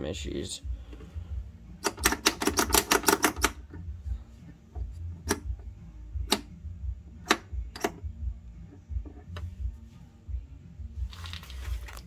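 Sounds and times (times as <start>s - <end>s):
sharp control clicks: 6.2s - 6.5s.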